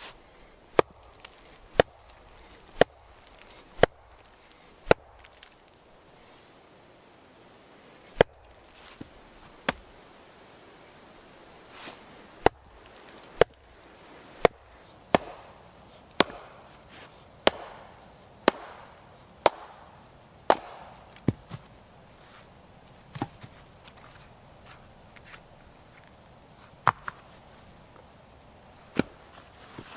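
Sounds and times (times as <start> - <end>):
log splitting: 0.0 - 6.0, 7.9 - 10.0, 11.7 - 21.8, 28.9 - 29.9.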